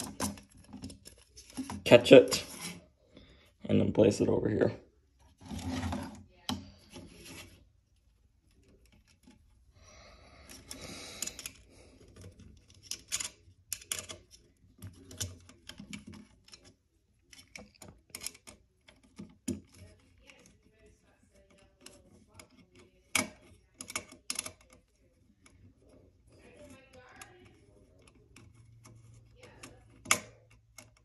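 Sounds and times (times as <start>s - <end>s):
wire and plastic scraping on wood: 0.0s - 3.6s, 5.1s - 9.7s, 10.4s - 31.0s
screwdriver clicks and scrapes: 10.5s - 20.6s.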